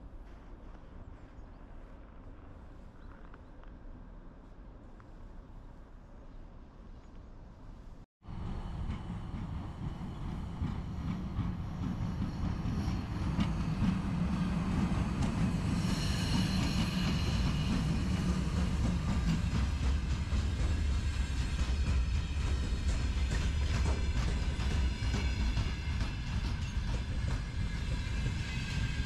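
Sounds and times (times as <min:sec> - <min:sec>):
rail vehicle rumbling past: 0:08.2 - 0:29.0
high squeal: 0:15.6 - 0:18.5.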